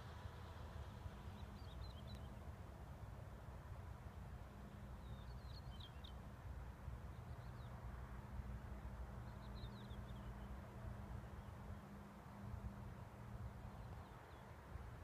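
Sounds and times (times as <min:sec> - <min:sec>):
small birds chirping: 0:09.2 - 0:10.4.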